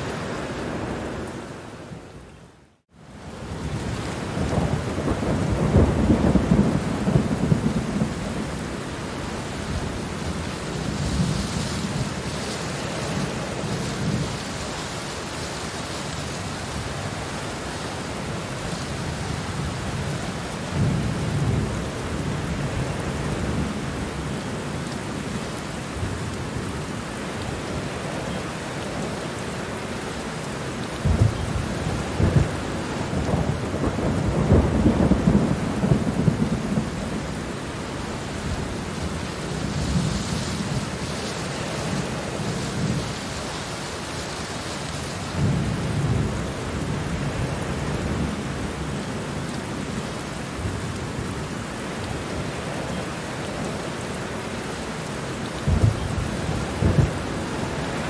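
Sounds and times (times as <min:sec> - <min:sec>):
steady rain: 0:00.0 - 0:58.0
low rumbles of thunder: 0:03.4 - 0:08.9, 0:31.0 - 0:37.6, 0:45.2 - 0:51.4, 0:55.6 - 0:57.7.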